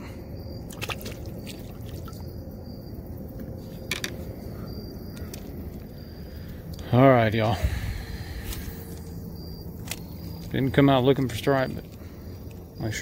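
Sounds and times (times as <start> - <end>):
steady low rumble: 0.0 - 13.0
light water splashing: 0.7 - 2.3.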